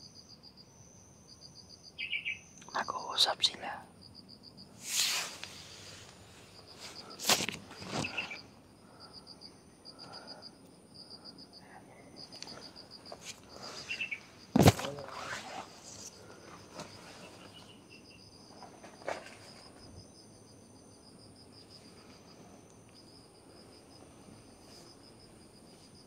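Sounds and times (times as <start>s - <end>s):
insects chirping: 0.0s - 26.0s
leaves brushing against camera: 4.8s - 8.4s, 13.1s - 17.6s.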